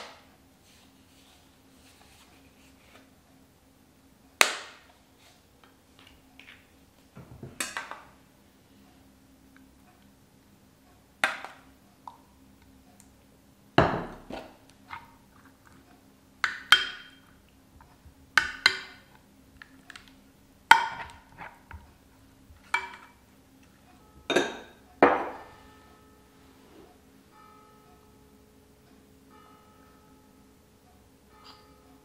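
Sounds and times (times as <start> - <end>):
metal spoon clinking on dishes: 24.3 - 25.6, 31.4 - 31.8.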